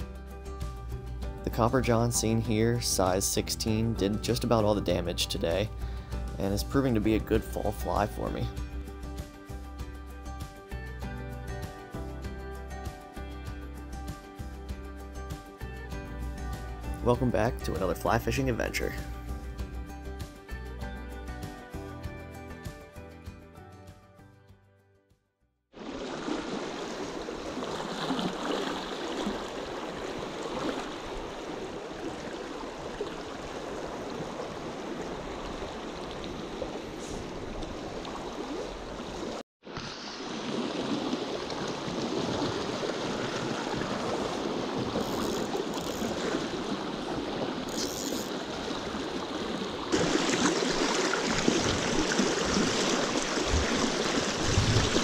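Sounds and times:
water rushing over rocks: 25.8s - 55.0s.

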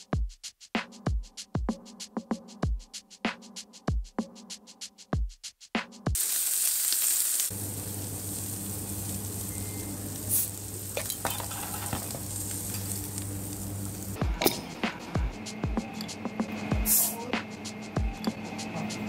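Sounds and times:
music with drum beat: 0.0s - 6.2s, 14.2s - 19.0s
steady sizzling hiss: 6.2s - 19.0s
bottle cap opening hiss: 9.6s - 12.9s, 16.9s - 17.2s.

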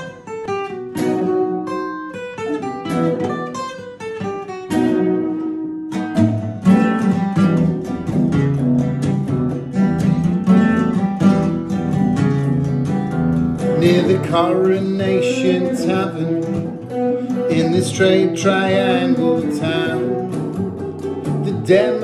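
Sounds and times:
acoustic guitar picking: 0.0s - 22.0s
electric guitar strummed chords: 4.6s - 22.0s.

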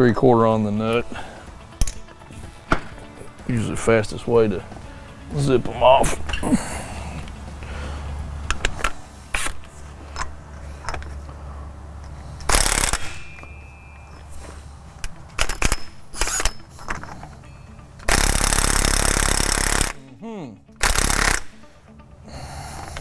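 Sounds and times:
impact wrench hammering: 12.5s - 14.1s, 18.1s - 20.0s, 20.8s - 21.6s.

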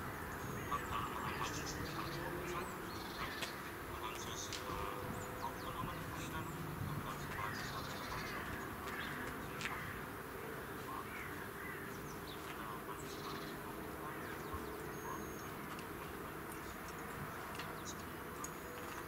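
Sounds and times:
birds calling: 0.0s - 19.0s.

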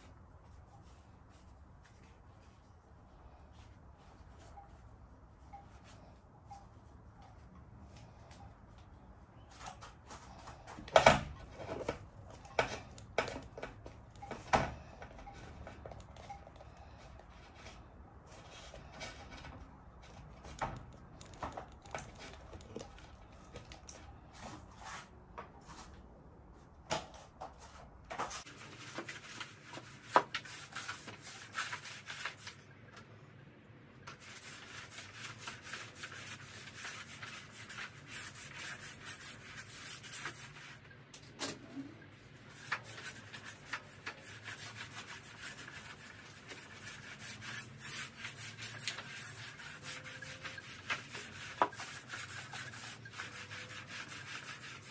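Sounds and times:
mop scraping over deck boards: 27.6s - 32.6s, 34.1s - 40.8s, 42.3s - 54.9s.

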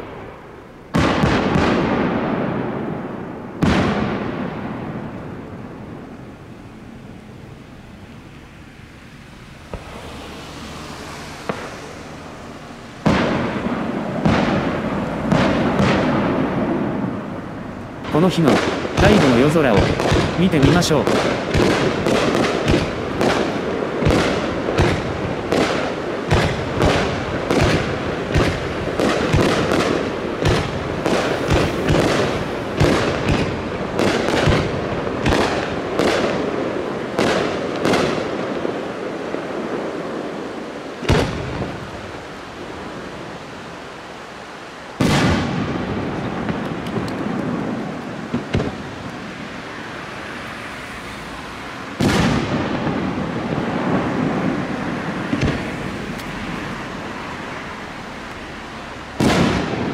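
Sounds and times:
firework shells bursting: 9.7s - 42.8s, 45.0s - 49.4s.

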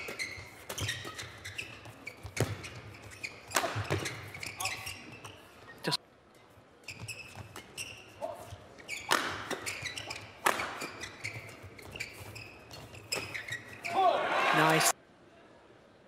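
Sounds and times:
rackets hitting shuttlecock: 0.0s - 5.3s, 6.8s - 13.8s
shoes squeaking on court: 0.0s - 14.9s.

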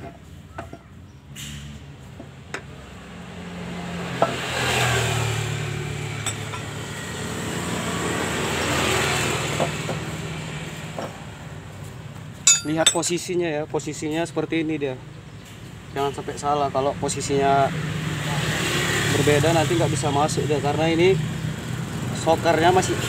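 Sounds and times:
engine running: 1.6s - 13.0s
metal clinks: 6.2s - 6.7s, 12.4s - 13.3s.

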